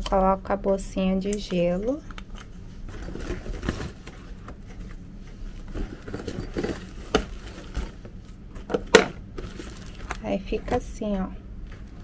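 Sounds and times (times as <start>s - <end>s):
foil bag rustling and crinkling: 5.6s - 10.7s.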